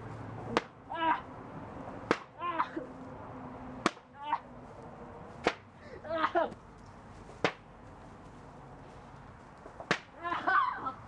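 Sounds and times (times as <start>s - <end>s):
person yelling in pain: 0.9s - 1.3s, 2.4s - 2.8s, 5.9s - 6.5s
board smacking a person: 9.8s - 10.1s.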